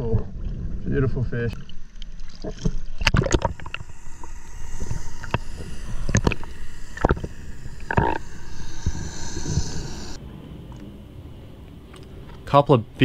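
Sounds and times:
muffled underwater rumble: 0:02.3 - 0:10.2.

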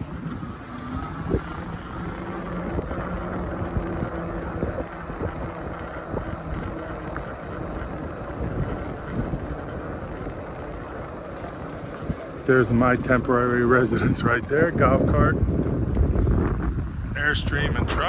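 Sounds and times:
low mechanical hum: 0:00.0 - 0:18.0
rumbling background: 0:00.0 - 0:18.0
wind on microphone: 0:00.0 - 0:18.0.

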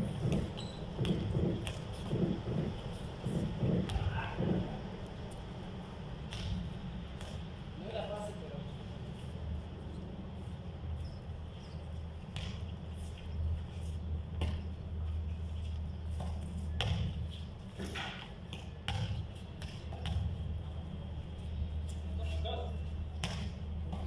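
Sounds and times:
basketball bouncing on concrete: 0:00.0 - 0:04.6, 0:16.2 - 0:17.2, 0:17.8 - 0:20.4, 0:23.2 - 0:24.0
steady low rumble: 0:00.0 - 0:17.8.

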